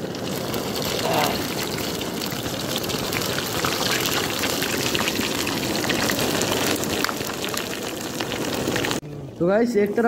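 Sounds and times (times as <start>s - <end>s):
deep-frying sizzle with crackles: 0.0s - 9.0s.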